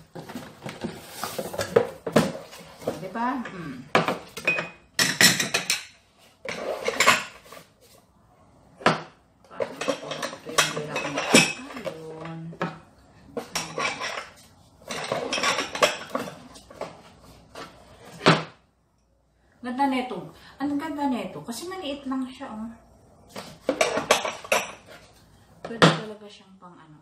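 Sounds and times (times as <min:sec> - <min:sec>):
cardboard and paper rustling: 0:00.0 - 0:03.4
crockery knocking and clinking: 0:01.6 - 0:07.5, 0:08.8 - 0:17.0, 0:23.3 - 0:26.1.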